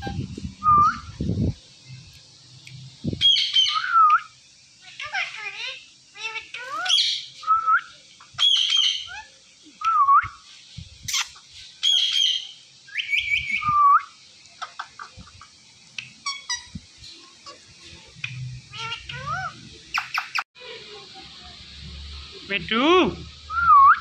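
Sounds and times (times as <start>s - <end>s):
parakeets whistling and squawking: 0.0s - 1.2s, 3.2s - 9.4s, 11.1s - 15.2s, 16.2s - 16.8s, 18.2s - 20.4s
parakeet chirps and clicks: 14.4s - 16.7s, 18.2s - 20.4s.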